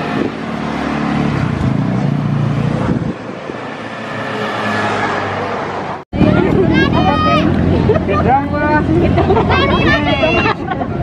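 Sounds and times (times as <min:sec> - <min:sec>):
road noise: 0:00.0 - 0:11.0
vehicle engine running: 0:06.2 - 0:11.0.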